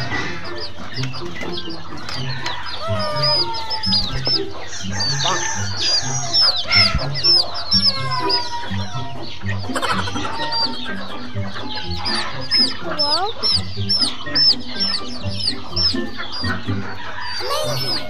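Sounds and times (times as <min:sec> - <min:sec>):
background music: 0:00.0 - 0:18.0
chicks peeping: 0:00.0 - 0:18.0.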